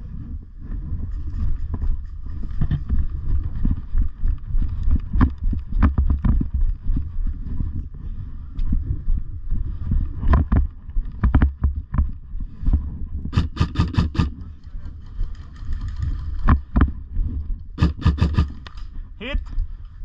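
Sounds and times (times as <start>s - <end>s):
wind rumble on microphone: 0.0s - 20.0s
airsoft guns firing: 13.3s - 14.4s, 17.8s - 18.8s
player moving: 13.3s - 16.8s, 17.8s - 20.0s.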